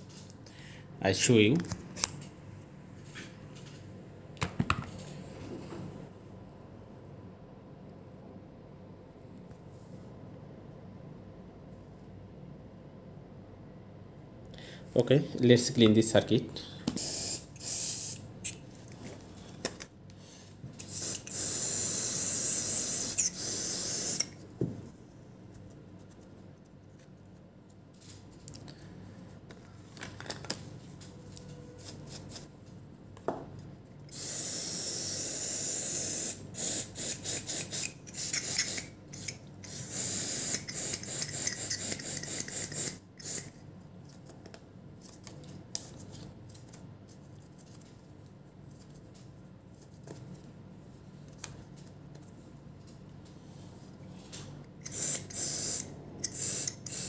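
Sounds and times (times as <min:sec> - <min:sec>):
aerosol spray can hissing: 0:17.0 - 0:18.2, 0:20.9 - 0:24.3, 0:34.1 - 0:43.5, 0:54.8 - 0:57.0.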